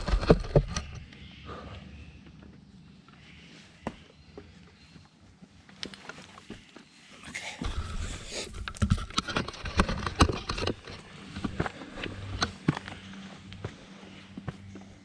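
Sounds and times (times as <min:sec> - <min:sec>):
footsteps on rocky leafy path: 0:08.5 - 0:15.0.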